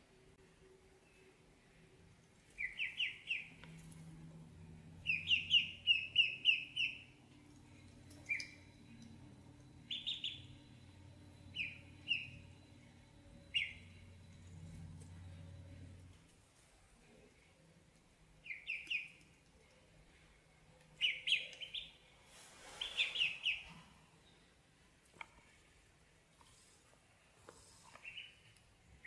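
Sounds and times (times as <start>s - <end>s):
ducklings peeping: 2.6s - 3.6s, 4.8s - 7.2s, 8.1s - 12.6s, 13.4s - 14.2s, 18.4s - 19.2s, 21.0s - 22.0s, 22.8s - 23.8s, 28.0s - 28.4s.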